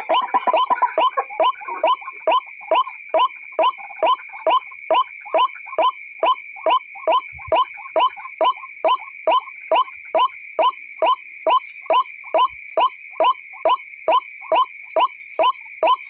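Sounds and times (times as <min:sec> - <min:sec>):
waterhen calling: 0:00.0 - 0:09.9.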